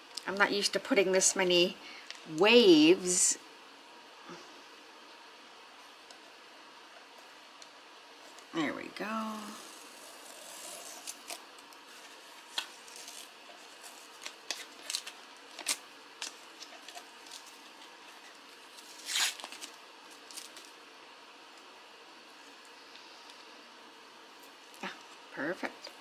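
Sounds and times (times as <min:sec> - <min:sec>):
masking tape peeling crackles: 0:09.4 - 0:20.8
tape ripping: 0:09.6 - 0:11.4, 0:12.5 - 0:17.5, 0:18.8 - 0:20.7.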